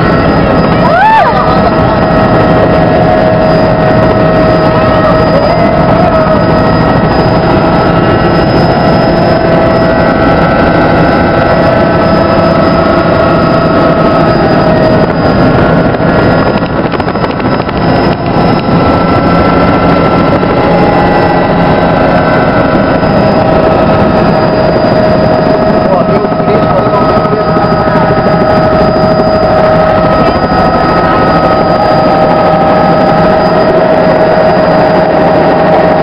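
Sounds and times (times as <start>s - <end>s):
helicopter engine and rotor drone: 0.0s - 36.0s
high whining tones: 0.0s - 36.0s.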